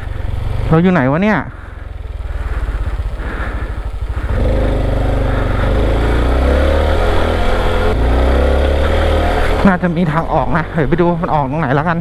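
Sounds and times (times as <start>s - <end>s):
motorcycle engine revving up: 0.0s - 12.0s.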